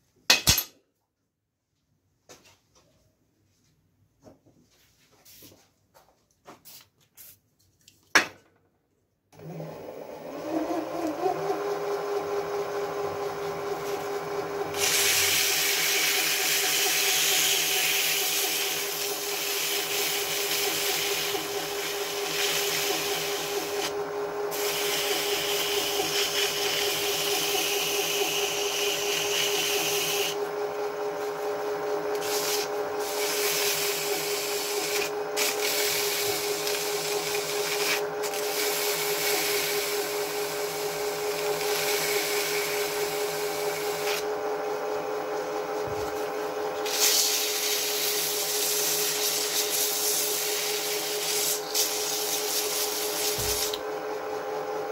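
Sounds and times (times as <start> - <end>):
lathe humming: 9.4 - 47.0.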